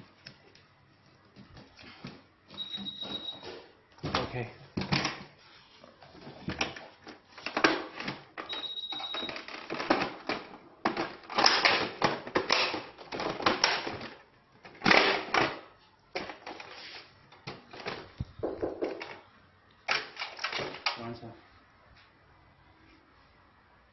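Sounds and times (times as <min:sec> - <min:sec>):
plastic seat parts clattering: 0:06.2 - 0:19.2, 0:19.9 - 0:21.0.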